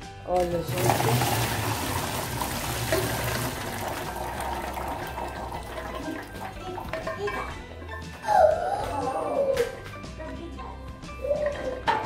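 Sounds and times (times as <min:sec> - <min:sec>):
water pouring and splashing: 0:00.3 - 0:07.5.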